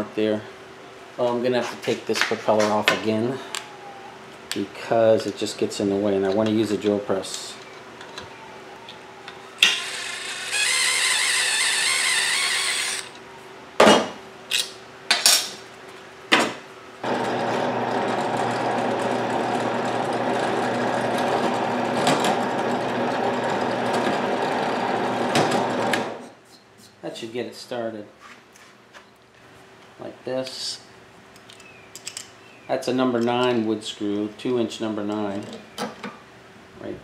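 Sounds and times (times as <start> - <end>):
cordless drill running: 9.7 - 13.2, 17.0 - 26.2
drill press drilling into wood: 17.0 - 26.2.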